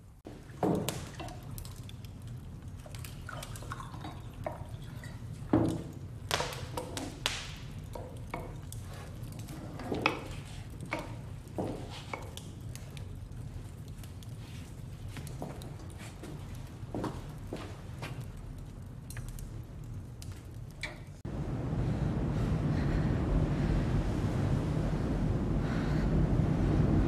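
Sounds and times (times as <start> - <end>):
low steady rumble: 18.2 - 27.0.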